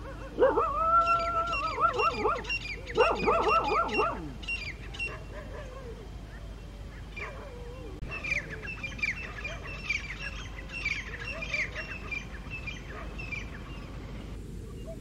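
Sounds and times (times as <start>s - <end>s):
francolin loud call: 0.0s - 5.3s
distant lower bird calls: 0.0s - 15.0s
small birds chirping: 0.0s - 15.0s.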